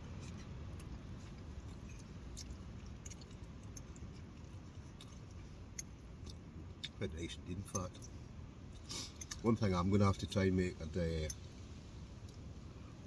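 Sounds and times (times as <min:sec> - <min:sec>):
person chewing food: 0:00.0 - 0:07.0
low rumble of wind: 0:00.0 - 0:13.0.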